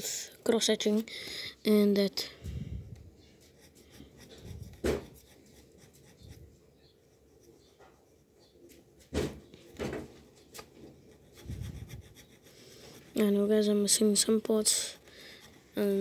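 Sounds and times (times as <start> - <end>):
drawing strokes on paper: 2.5 - 8.6, 10.8 - 16.0.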